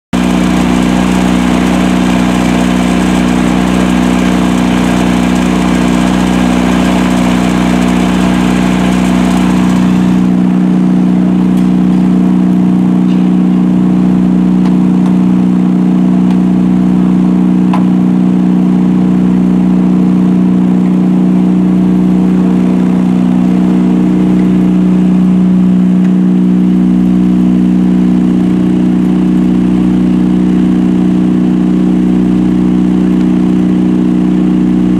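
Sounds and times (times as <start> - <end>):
engine-driven pump running: 0.1 - 34.9.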